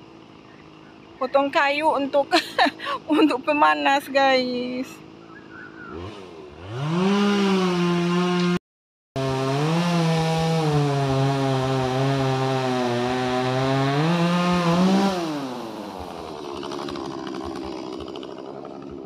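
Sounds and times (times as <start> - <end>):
chainsaw cutting wood: 5.8 - 8.6, 9.2 - 19.0.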